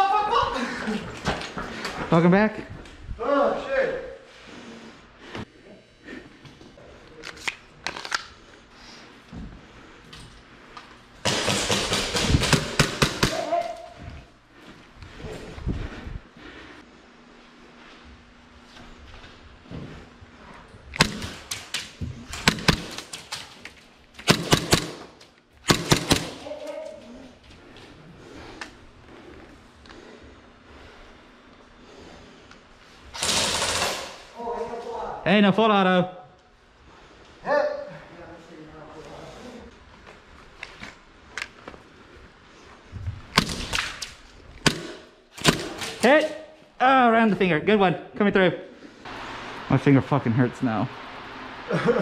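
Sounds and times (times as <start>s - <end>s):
airsoft pistol shots: 11.2s - 13.5s, 21.0s - 21.7s, 22.4s - 23.2s, 24.2s - 26.4s.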